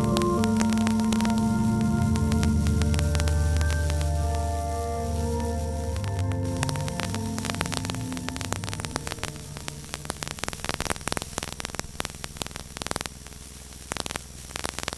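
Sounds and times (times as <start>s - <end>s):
outro music: 0.0s - 12.0s
crackling static clicks: 0.0s - 14.9s
steady low hum: 0.0s - 14.9s.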